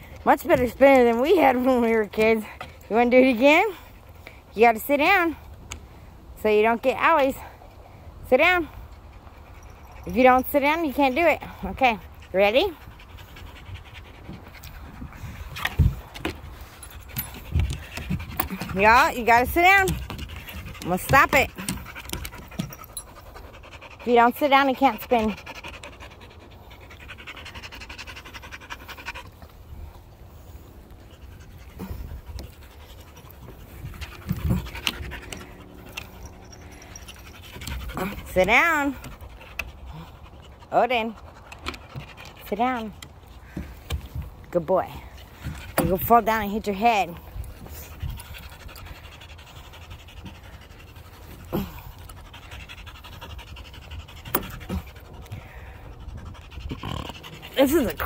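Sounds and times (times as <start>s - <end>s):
dog panting: 6.6s - 58.0s.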